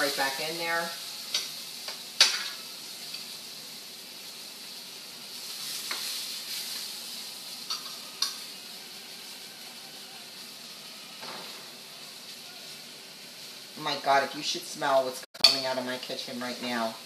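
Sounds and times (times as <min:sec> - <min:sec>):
chicken sizzling in frying pan: 0:00.0 - 0:17.0
metal utensil clicking on pan: 0:01.3 - 0:03.3, 0:05.8 - 0:06.2, 0:07.7 - 0:08.4, 0:15.4 - 0:15.7.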